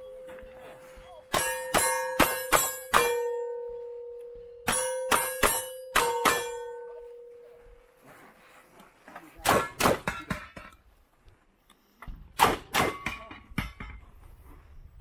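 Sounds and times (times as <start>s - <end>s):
steel targets ringing: 0.0s - 7.9s
shotgun shots: 9.4s - 10.3s, 12.4s - 13.2s.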